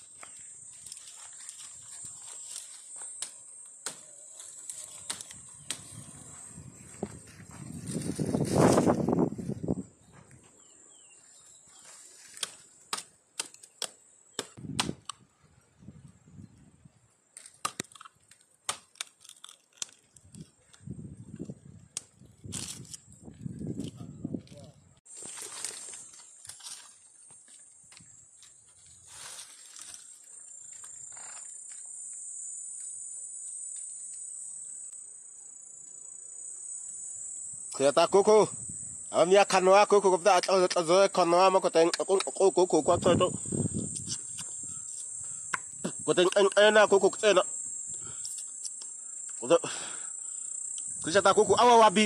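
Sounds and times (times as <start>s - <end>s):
insects shrilling: 0.0s - 9.8s, 25.1s - 52.0s
dry wood snapping: 0.2s - 5.9s, 12.2s - 15.2s, 17.4s - 23.0s, 25.2s - 30.2s, 40.3s - 40.9s, 41.8s - 42.5s, 45.5s - 47.2s.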